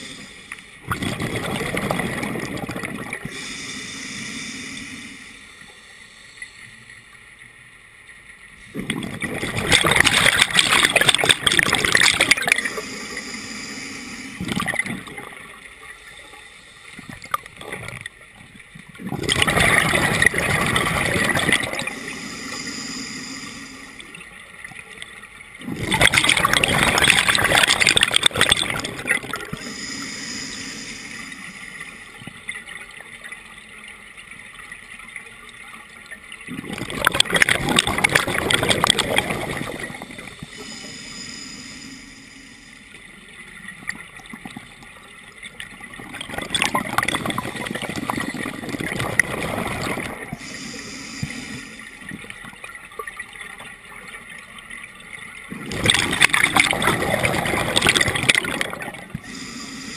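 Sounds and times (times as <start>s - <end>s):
regulator hiss: 0.0s - 0.8s, 3.3s - 7.3s, 10.5s - 17.4s, 20.2s - 24.3s, 26.8s - 32.5s, 38.0s - 43.3s, 50.4s - 52.2s, 59.2s - 59.9s.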